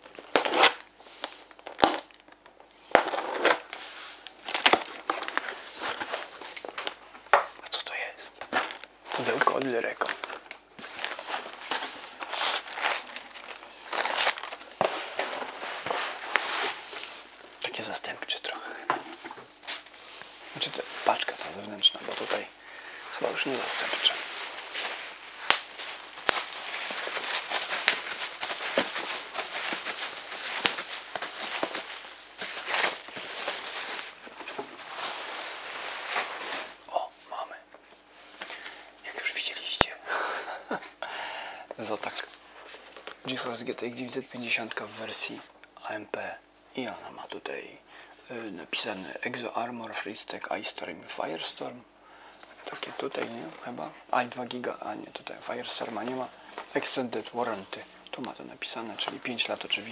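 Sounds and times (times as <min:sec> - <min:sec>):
bubble wrap snaps: 0:00.0 - 0:07.6, 0:23.3 - 0:36.8
packaging rustling and crinkling: 0:00.0 - 0:37.1, 0:52.5 - 0:59.9
sharp rips of packaging: 0:00.1 - 0:03.8.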